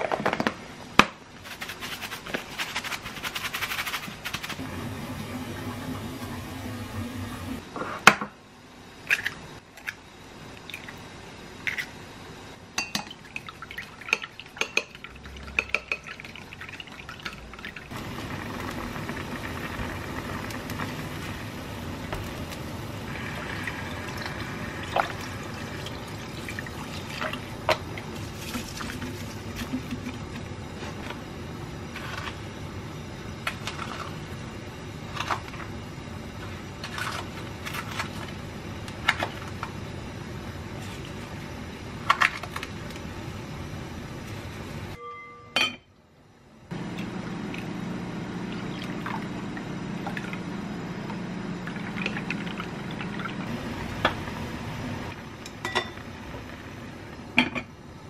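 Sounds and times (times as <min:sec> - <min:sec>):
water boiling in pot: 0:13.1 - 0:45.0, 0:46.8 - 0:58.0
utensils clinking against pot: 0:55.4 - 0:56.0.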